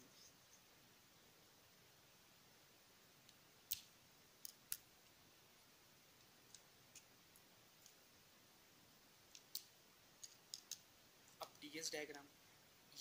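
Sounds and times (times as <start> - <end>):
sharp clicks: 9.3 - 10.9.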